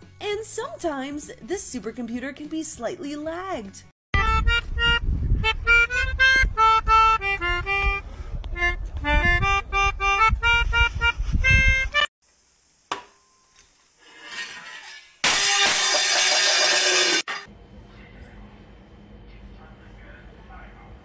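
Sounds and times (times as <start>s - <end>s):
melodica melody: 4.2s - 8.0s, 8.6s - 12.1s.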